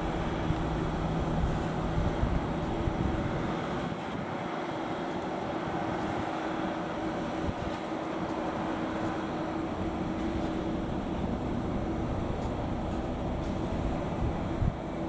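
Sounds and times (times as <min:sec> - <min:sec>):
distant diesel engine rumble: 0:06.7 - 0:15.0.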